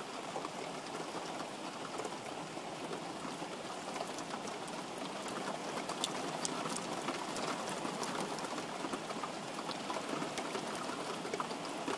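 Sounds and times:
heavy rain on a tiled roof: 0.0s - 11.9s
raindrop ticks: 3.8s - 11.9s.

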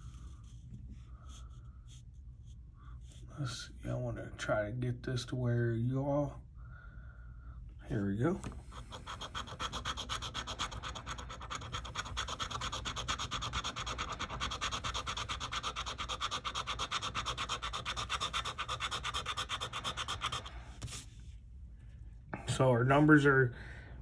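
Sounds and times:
metal scraping scratch ticket: 8.6s - 20.9s.

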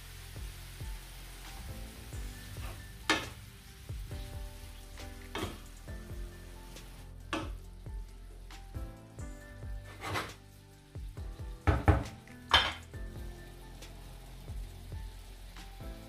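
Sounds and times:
cauliflower sizzling in pan: 0.0s - 16.0s
spatula knocking on pan: 11.6s - 12.8s.

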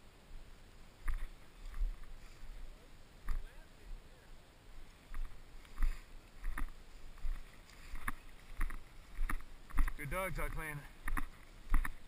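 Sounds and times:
footsteps through tall grass: 1.0s - 3.5s, 4.8s - 12.0s.

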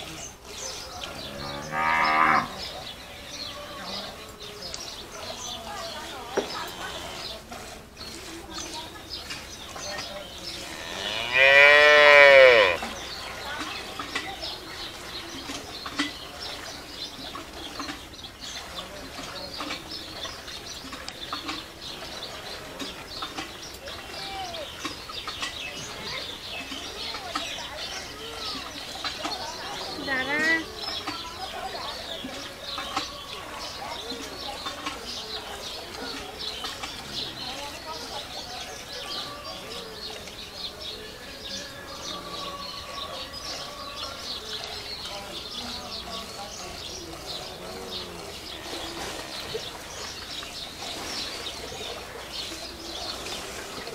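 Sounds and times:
birds chirping: 0.0s - 53.9s.

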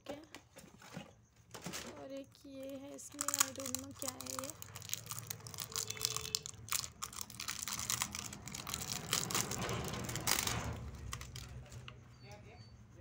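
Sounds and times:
plastic wrap crinkling: 1.5s - 11.8s.

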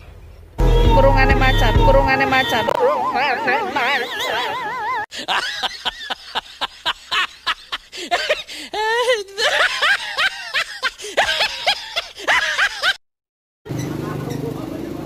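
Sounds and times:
high-pitched snickering laugh: 2.3s - 13.0s.

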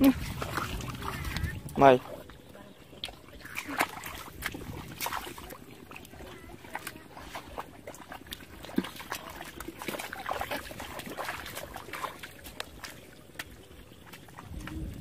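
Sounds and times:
sloshing through muddy water: 0.0s - 15.0s
small splashes and drips: 0.0s - 15.0s.

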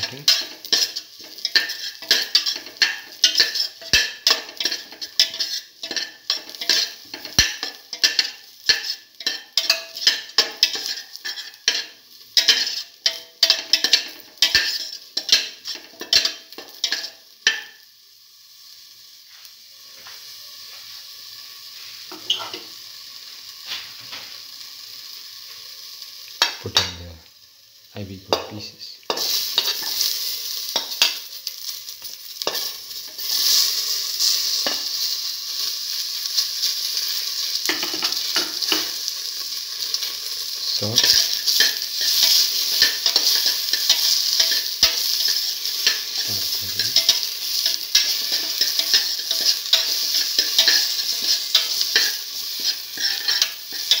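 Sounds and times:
onions sizzling in oil: 0.0s - 54.0s
spoon scraping a pot: 0.2s - 17.8s, 22.1s - 22.7s, 37.7s - 39.0s, 41.0s - 54.0s.

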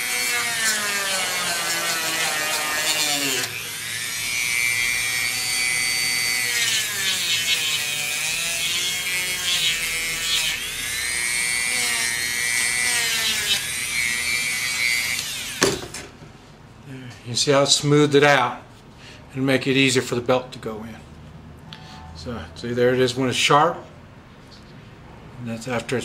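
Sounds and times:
rotary tool grinding leather: 0.0s - 15.6s.

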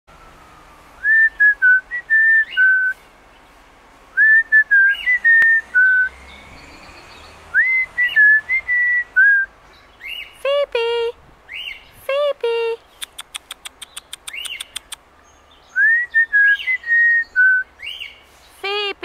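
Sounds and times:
whistled tune: 0.3s - 3.0s, 7.6s - 9.5s, 15.8s - 17.7s.

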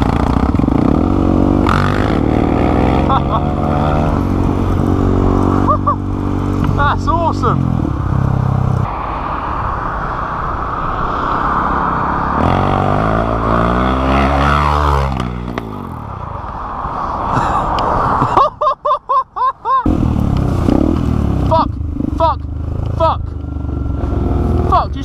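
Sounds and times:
motorcycle engine revving: 0.0s - 8.9s, 11.5s - 16.2s, 19.9s - 25.0s
motorcycle engines running: 0.0s - 8.9s, 12.3s - 16.6s, 19.9s - 25.0s
wind rush: 0.0s - 18.7s.

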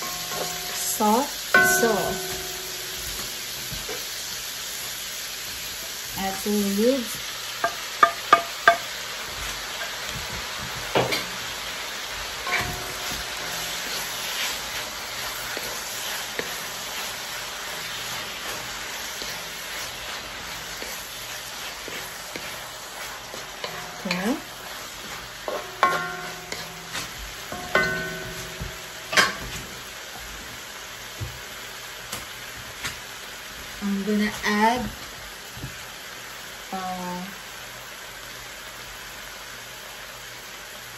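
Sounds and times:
spatula knocking against wok: 0.0s - 1.0s, 1.6s - 3.9s, 7.6s - 8.9s, 12.5s - 14.1s, 23.3s - 24.7s, 25.4s - 29.7s
vegetables sizzling in a wok: 0.0s - 40.9s.

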